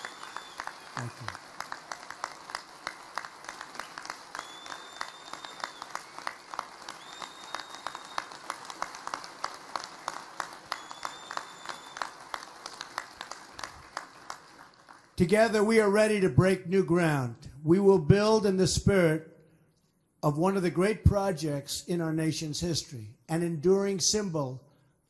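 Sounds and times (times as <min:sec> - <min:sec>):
audience applauding: 0:00.0 - 0:15.3.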